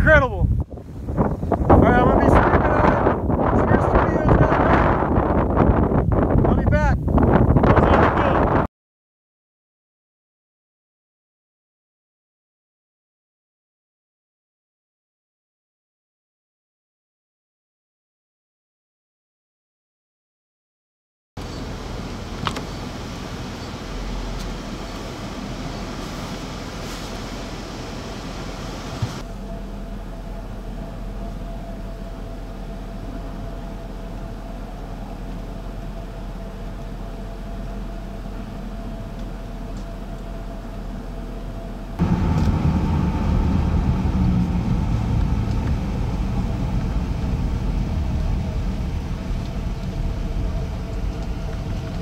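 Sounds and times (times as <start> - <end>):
car engine and road hum: 21.4 - 52.0.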